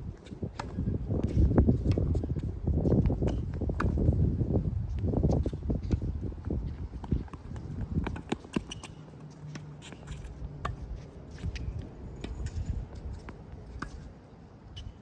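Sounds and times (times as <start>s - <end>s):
shoe steps on court: 4.9s - 14.1s
ball bouncing on court: 7.0s - 9.0s
racket hitting ball: 7.0s - 10.8s.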